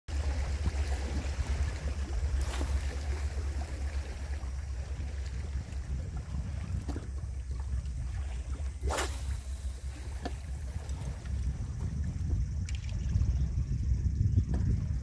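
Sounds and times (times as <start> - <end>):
rushing water: 0.1 - 11.7
wind buffeting microphone: 0.1 - 15.0
rushing swish: 8.8 - 10.6.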